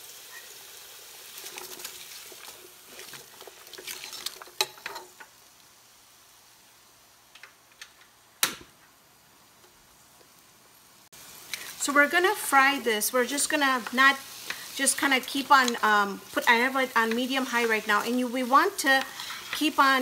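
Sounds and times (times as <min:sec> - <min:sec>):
food sizzling in oil: 0:00.0 - 0:07.3, 0:09.0 - 0:20.0
stirring scrapes and clinks: 0:01.4 - 0:05.2, 0:18.8 - 0:19.8.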